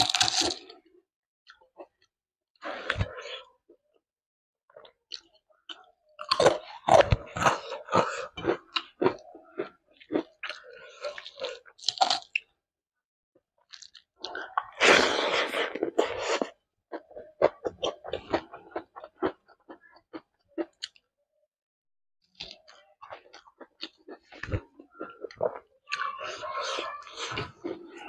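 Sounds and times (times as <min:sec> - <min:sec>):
wet mouth clicks and crunches: 0:00.0 - 0:00.7
person chewing food: 0:00.0 - 0:00.9, 0:04.7 - 0:12.5, 0:13.6 - 0:21.0, 0:22.3 - 0:28.0.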